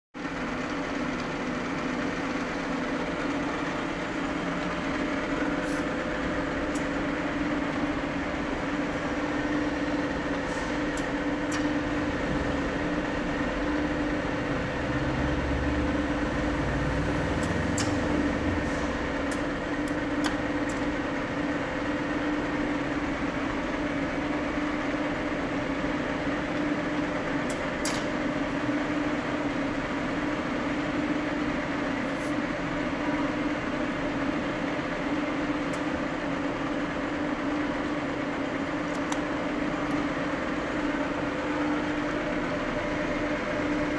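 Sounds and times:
lathe running hum: 0.2s - 43.9s.

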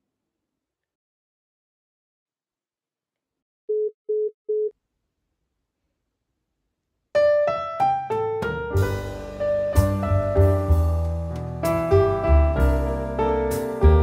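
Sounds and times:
piano music: 7.2s - 14.0s.

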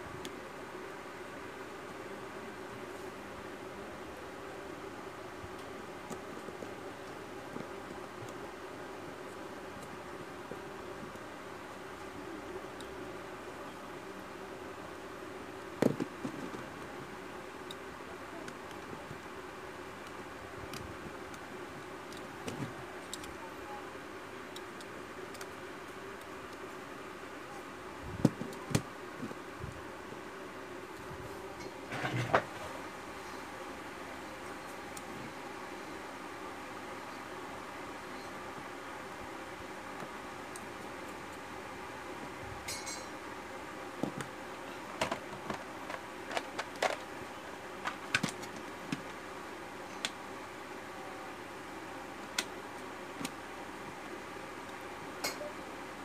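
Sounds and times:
steady background hiss: 0.0s - 56.0s
steady low hum: 0.0s - 56.0s
small parts clicking and tapping: 22.1s - 23.4s, 24.5s - 26.6s.

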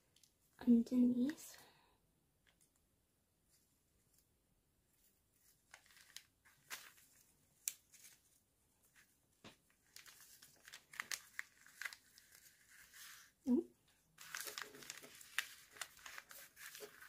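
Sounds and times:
paper rustling and crinkling: 5.0s - 17.0s
twine pulled across paper: 11.7s - 13.4s, 14.2s - 17.0s.

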